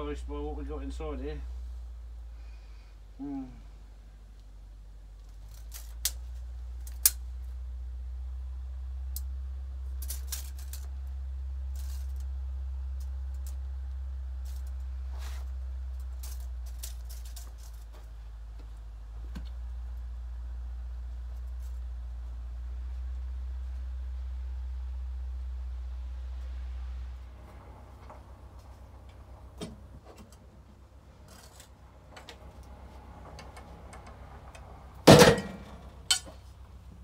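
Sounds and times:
steady low hum: 0:00.0 - 0:37.0
tape measure clicking and rattling: 0:05.2 - 0:07.2, 0:09.9 - 0:11.1, 0:11.7 - 0:13.6, 0:16.0 - 0:17.9.

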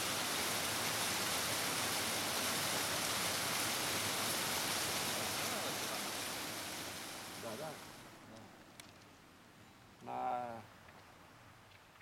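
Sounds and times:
stream cascading over rocks: 0:00.0 - 0:08.2.

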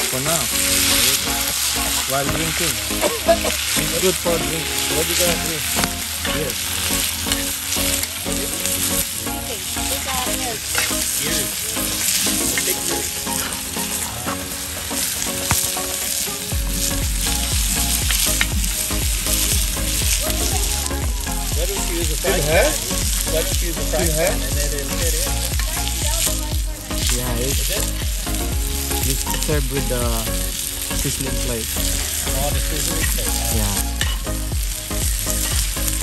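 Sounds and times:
meat sizzling on a hot plate: 0:00.0 - 0:36.0.

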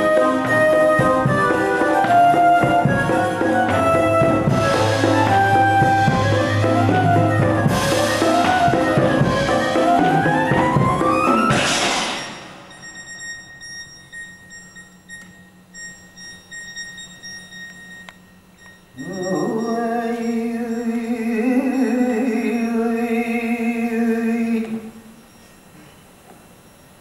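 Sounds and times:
faint stage sounds: 0:00.0 - 0:27.0
person singing a long held note: 0:19.0 - 0:25.0.

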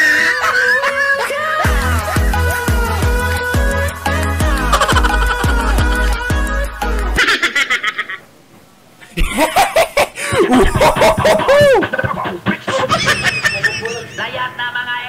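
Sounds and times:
people laughing loudly: 0:00.0 - 0:02.3, 0:04.5 - 0:06.0, 0:07.2 - 0:08.2, 0:09.2 - 0:14.3.

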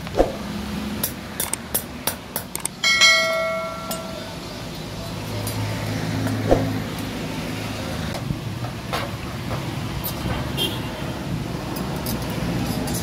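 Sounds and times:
hammer striking metal blade: 0:01.0 - 0:04.4
passing vehicle engine hum: 0:03.5 - 0:08.6.

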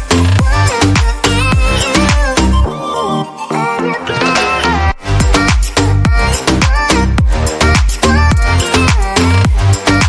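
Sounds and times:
dance music with kick drum: 0:00.0 - 0:02.7, 0:05.0 - 0:10.0.

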